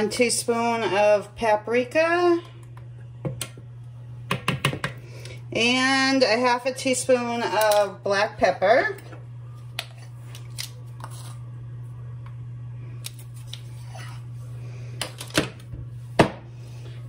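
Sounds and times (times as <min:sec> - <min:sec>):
low hum: 0:04.9 - 0:17.0.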